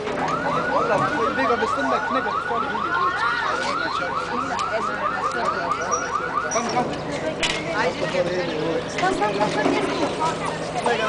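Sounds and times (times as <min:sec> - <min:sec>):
car alarm whooping: 0:00.2 - 0:06.8.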